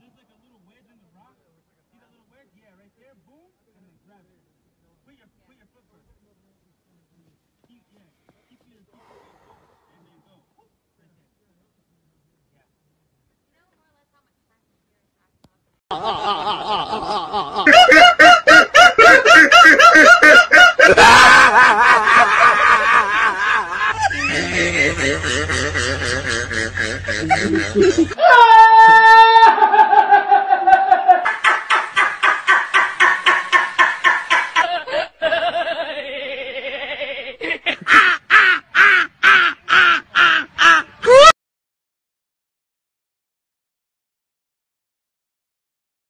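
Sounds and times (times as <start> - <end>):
bursts of laughter: 15.9 - 41.4
rapid pitched vocal-like sounds: 23.1 - 28.2
rhythmic voice bursts: 24.0 - 28.2.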